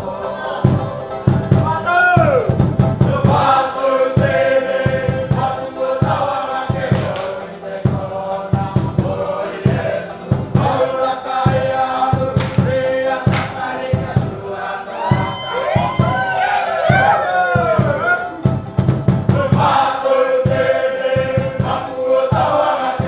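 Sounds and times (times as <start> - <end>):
voices singing in chorus: 0.0 - 18.6, 19.2 - 23.0
steady drum beat: 0.5 - 23.0.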